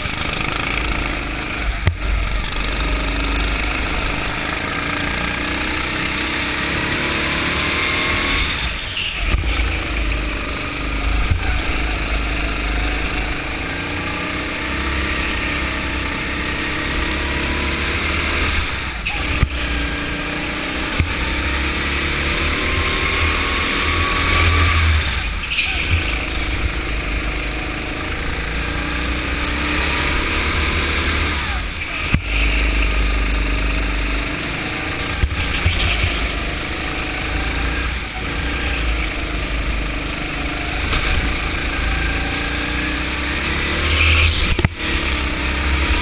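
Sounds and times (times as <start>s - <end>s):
go-kart engine accelerating: 0.0s - 46.0s.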